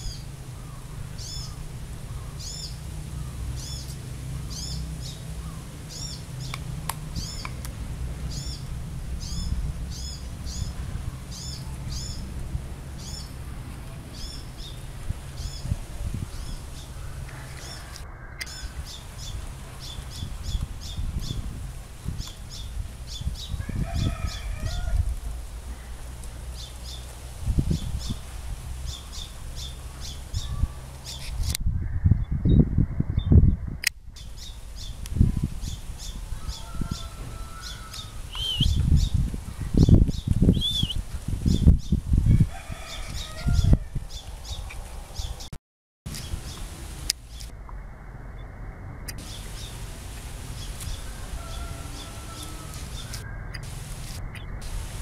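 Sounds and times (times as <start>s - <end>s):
small birds chirping: 0.0s - 32.6s, 34.1s - 42.0s, 42.6s - 45.5s, 46.1s - 47.5s, 48.4s - 55.0s
rooster crowing: 17.0s - 19.0s, 23.6s - 25.2s, 36.2s - 38.3s, 42.3s - 44.0s, 50.9s - 53.4s
low bird call: 35.6s - 39.2s, 39.8s - 41.6s.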